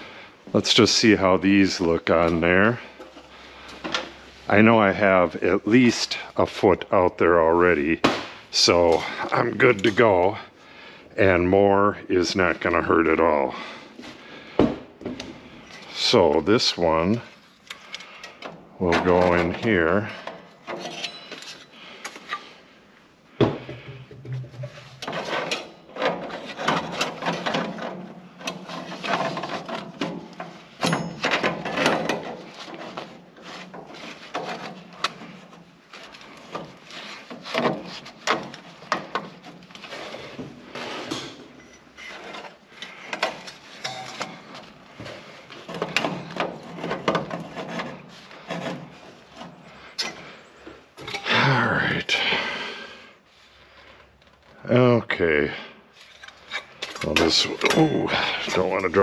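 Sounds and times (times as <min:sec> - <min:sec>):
metal scraping and clicking on metal: 0:17.3 - 0:22.5, 0:24.2 - 0:44.8, 0:56.0 - 0:59.0.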